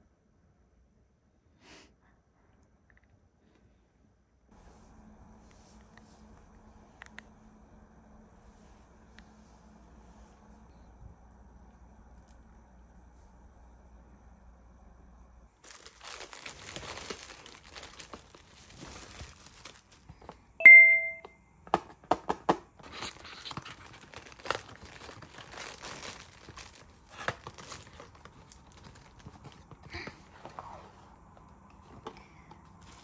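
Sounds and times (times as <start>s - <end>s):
bubble wrap crinkling: 15.6s - 20.4s, 23.0s - 30.1s
bell-like ding: 20.6s - 21.3s.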